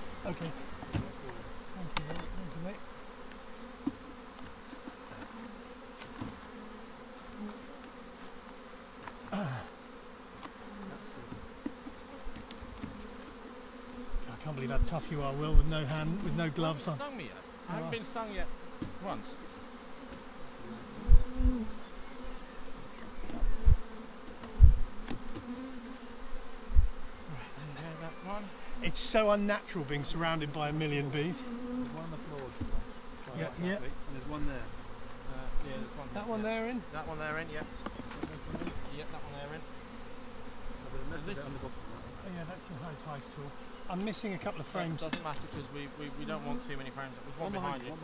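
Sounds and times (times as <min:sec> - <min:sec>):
bee buzzing close by: 0:00.0 - 0:48.0
honeybees buzzing: 0:00.0 - 0:48.0
low thumps: 0:21.0 - 0:21.8, 0:23.3 - 0:25.5, 0:26.7 - 0:27.0.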